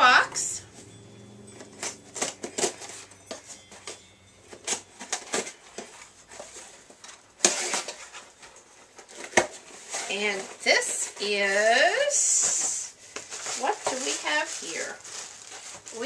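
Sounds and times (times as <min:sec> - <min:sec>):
cardboard ripping: 0:07.4 - 0:08.3.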